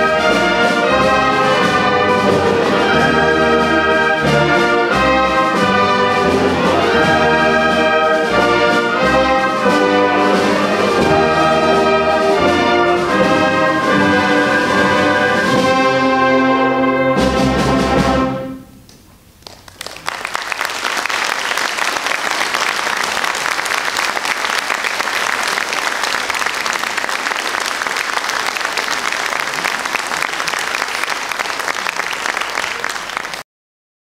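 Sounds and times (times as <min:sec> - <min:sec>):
wind band brass chord: 0:00.0 - 0:18.8
audience applause: 0:19.4 - 0:33.4.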